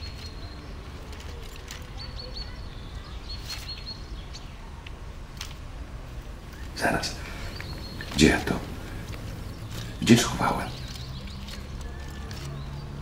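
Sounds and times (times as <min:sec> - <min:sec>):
steady low hum: 0:05.7 - 0:11.9
bag and papers rustling: 0:06.3 - 0:12.7
high bird chirps: 0:06.5 - 0:12.9.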